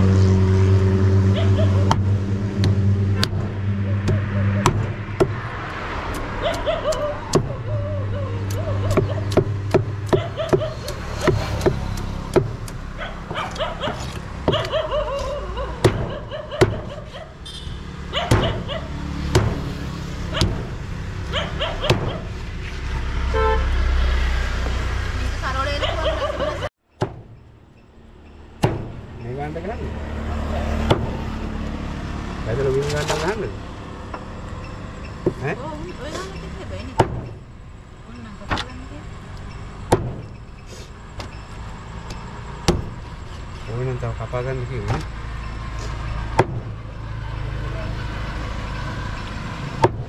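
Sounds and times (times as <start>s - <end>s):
cleaver chopping fish: 8.5s - 14.7s.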